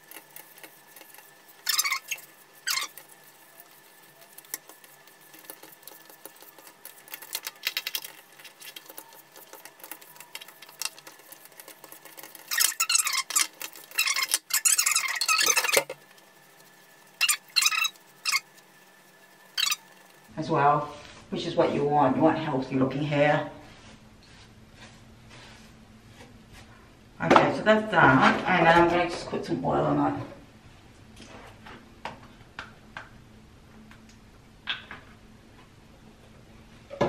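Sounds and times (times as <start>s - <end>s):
hairbrush strokes: 0.0s - 21.3s, 23.6s - 25.8s.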